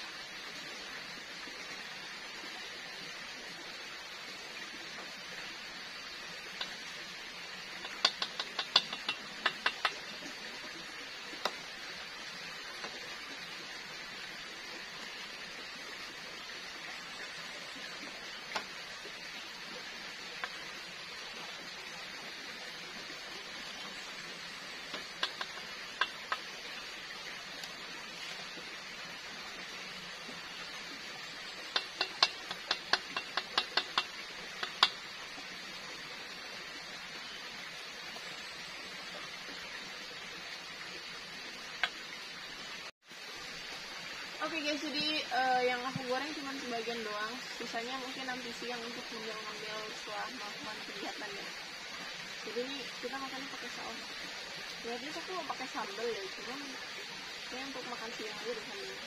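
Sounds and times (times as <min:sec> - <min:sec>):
frying hiss: 0:00.0 - 0:59.0
chopsticks clicking on a metal pan: 0:07.8 - 0:10.0, 0:25.2 - 0:26.4, 0:31.8 - 0:35.0.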